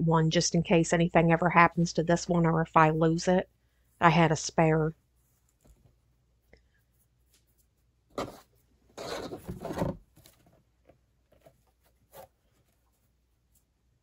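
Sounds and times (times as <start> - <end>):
sign rubbing and scraping on table: 8.2 - 10.0.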